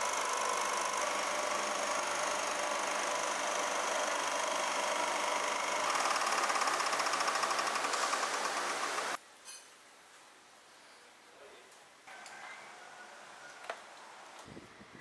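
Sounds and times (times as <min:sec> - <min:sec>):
fast even rattle: 0:00.0 - 0:09.2
machine running with high tones: 0:00.0 - 0:09.2.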